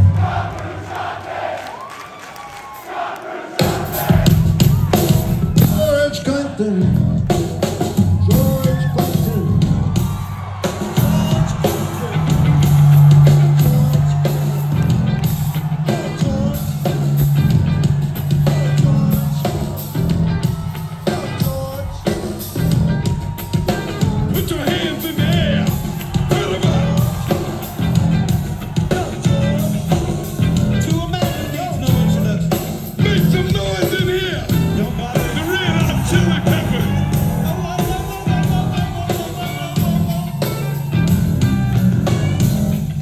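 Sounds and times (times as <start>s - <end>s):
rock band playing live: 3.6s - 43.0s
man singing: 5.5s - 9.8s, 10.8s - 14.6s, 15.8s - 17.2s, 18.3s - 19.9s, 21.1s - 22.6s, 23.6s - 27.8s, 28.7s - 40.9s.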